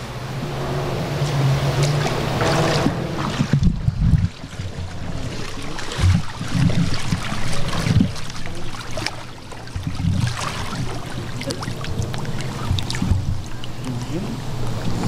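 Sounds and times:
pool water sloshing and splashing: 0:00.0 - 0:15.0
wind rumbling on microphone: 0:00.0 - 0:15.0.

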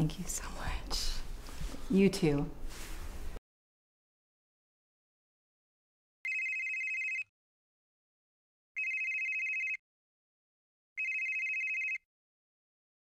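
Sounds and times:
phone ringing electronic trill: 0:06.3 - 0:07.3, 0:08.8 - 0:09.8, 0:11.0 - 0:12.0.

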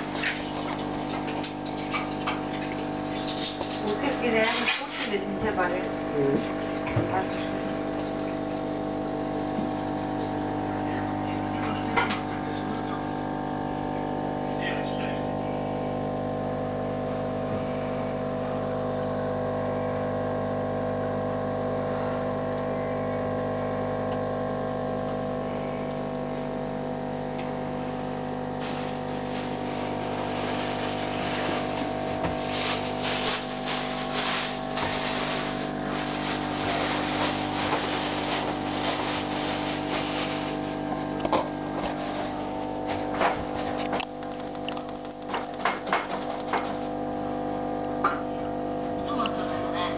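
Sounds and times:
air pump electric hum: 0:00.0 - 0:49.9
irregular clicks and crackling: 0:43.8 - 0:46.8.

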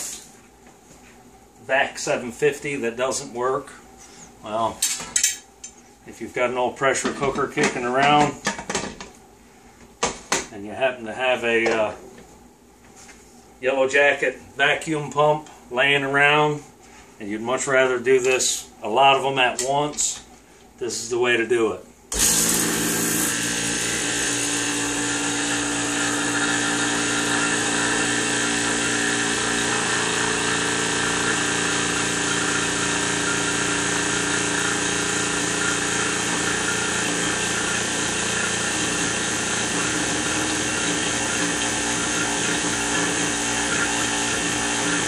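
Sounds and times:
vacuum pump running: 0:22.1 - 0:45.0.

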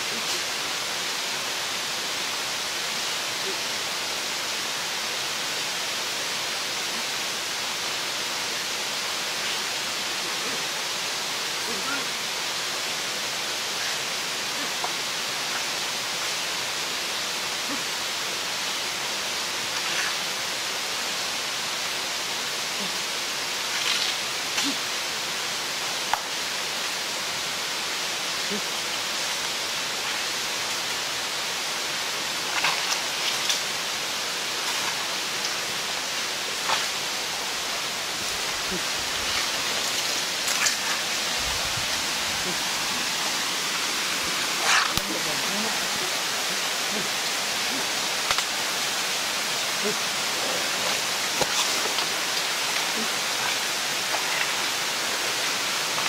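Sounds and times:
forest ambience hiss: 0:00.0 - 0:56.0
animals snapping twigs in leaves: 0:51.3 - 0:54.6.

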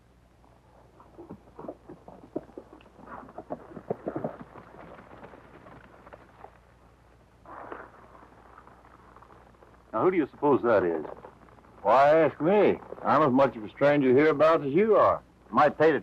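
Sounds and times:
old film soundtrack hum: 0:00.0 - 0:16.0
horse hooves clip-clopping: 0:01.0 - 0:06.8.

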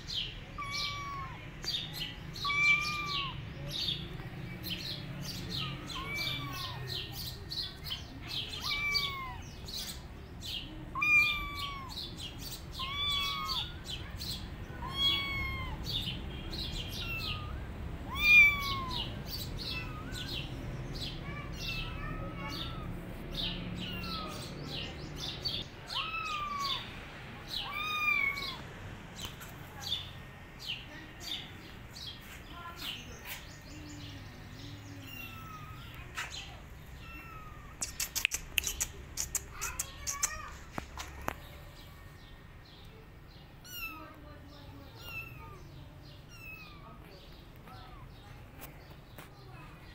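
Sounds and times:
birds chirping: 0:00.0 - 0:49.9
kitten meowing: 0:00.6 - 0:01.4, 0:02.3 - 0:03.4, 0:05.6 - 0:07.0, 0:08.5 - 0:09.9, 0:10.9 - 0:12.1, 0:12.8 - 0:13.9, 0:14.8 - 0:16.0, 0:17.0 - 0:20.5, 0:23.8 - 0:24.5, 0:25.8 - 0:26.9, 0:27.6 - 0:28.6, 0:35.0 - 0:36.0, 0:37.0 - 0:40.6, 0:43.6 - 0:44.1, 0:45.0 - 0:45.6, 0:46.3 - 0:47.0.

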